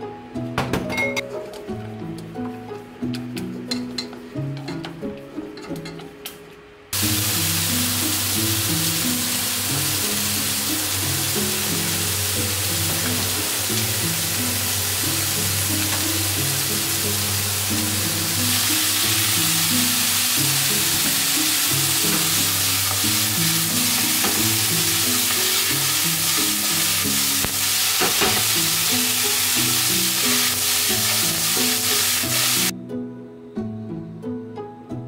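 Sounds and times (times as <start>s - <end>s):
soft background music: 0.0s - 35.0s
vegetables sizzling in a frying pan: 7.0s - 32.7s.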